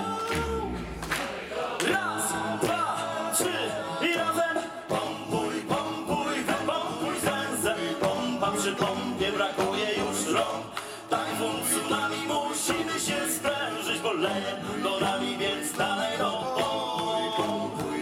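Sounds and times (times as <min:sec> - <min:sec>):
steady percussive beat: 0:00.0 - 0:03.6
male vocal group singing: 0:00.0 - 0:18.0.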